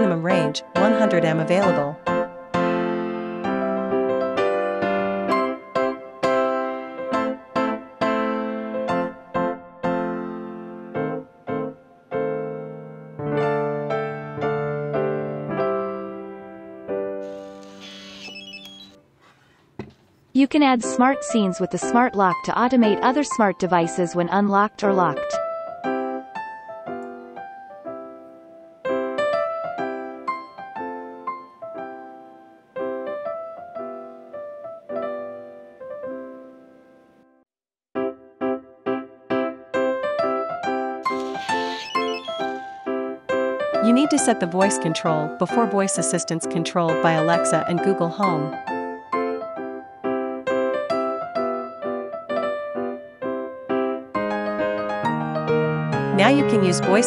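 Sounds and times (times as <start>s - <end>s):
electric piano chords: 0.0s - 17.9s, 25.0s - 37.1s, 46.8s - 57.0s.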